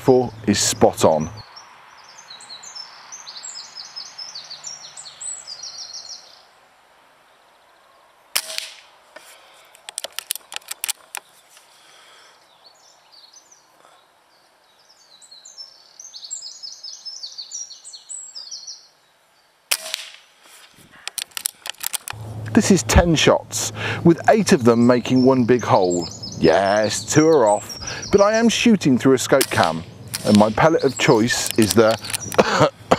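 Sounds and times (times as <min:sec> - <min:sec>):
small birds chirping: 0:00.0 - 0:06.6, 0:09.2 - 0:32.9
rifle action clicks: 0:08.4 - 0:08.9, 0:09.8 - 0:11.3, 0:19.7 - 0:20.2, 0:21.0 - 0:22.2, 0:29.4 - 0:30.7, 0:31.3 - 0:32.5
air rifle shot crack: 0:08.4 - 0:09.0, 0:19.7 - 0:20.3, 0:29.4 - 0:32.7.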